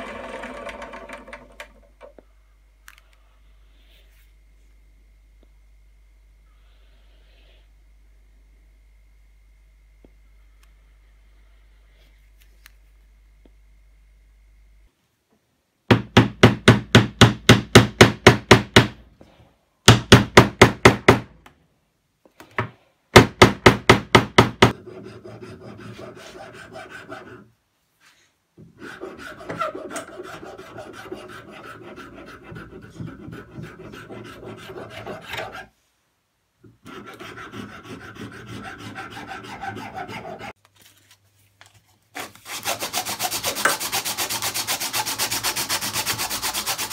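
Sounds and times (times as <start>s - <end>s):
file scraping on wood: 24.8s - 27.5s, 28.7s - 35.7s, 36.8s - 40.6s, 42.2s - 46.9s.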